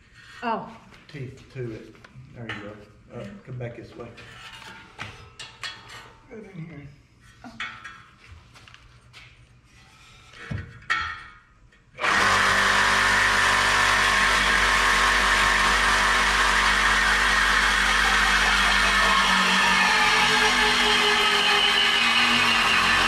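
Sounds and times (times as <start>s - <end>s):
reciprocating saw cutting pipe: 12.0s - 23.0s.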